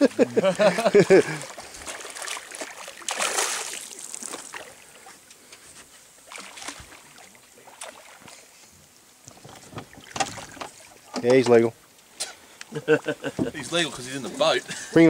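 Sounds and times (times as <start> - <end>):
loud splash: 0.6 - 4.8
fish thrashing in water: 1.0 - 5.1, 6.2 - 8.3.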